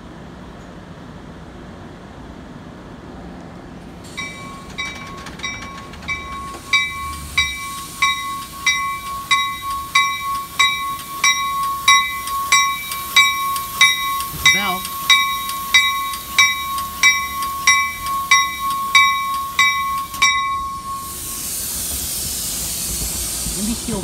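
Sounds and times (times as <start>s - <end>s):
train rumbling: 0.0s - 24.0s
railroad warning bell ringing: 4.1s - 22.0s.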